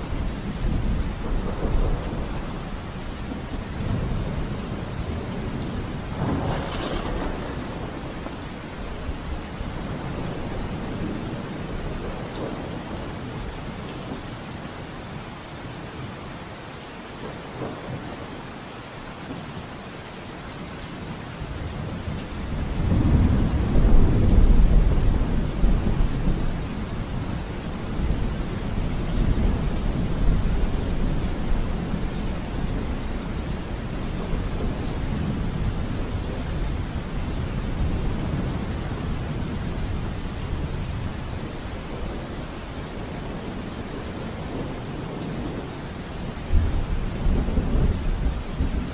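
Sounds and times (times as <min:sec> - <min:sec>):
steady rain: 0:00.0 - 0:48.9
rolling thunder: 0:00.1 - 0:13.5, 0:21.7 - 0:41.1, 0:46.4 - 0:48.9.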